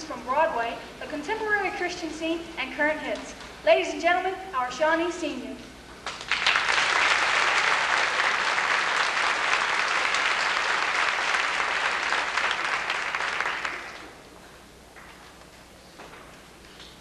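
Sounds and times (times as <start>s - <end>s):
audience applauding: 6.0s - 14.2s.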